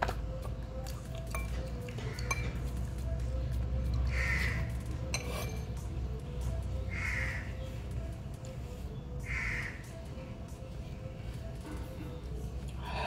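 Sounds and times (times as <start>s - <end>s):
background music: 0.0s - 13.0s
spoon clinking on ceramic bowl: 2.2s - 2.6s, 5.1s - 5.7s.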